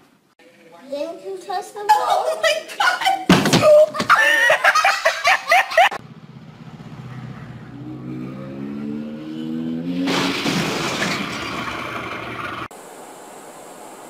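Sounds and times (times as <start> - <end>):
loud laughter: 2.5 - 6.0
motorcycle engine speeding up: 5.9 - 10.3, 11.1 - 12.7.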